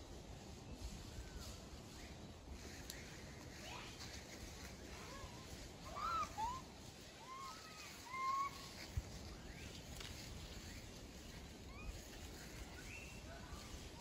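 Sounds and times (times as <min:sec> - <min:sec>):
faint outdoor background: 0:00.0 - 0:14.0
monkeys giving coo calls: 0:05.8 - 0:08.8.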